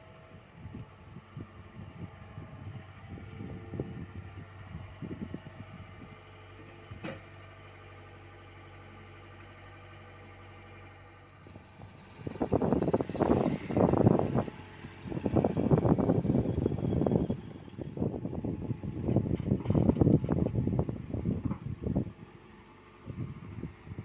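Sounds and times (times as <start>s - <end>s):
excavator diesel engine running: 0.0s - 24.0s
gusty rumbling: 0.6s - 6.2s, 11.6s - 24.0s.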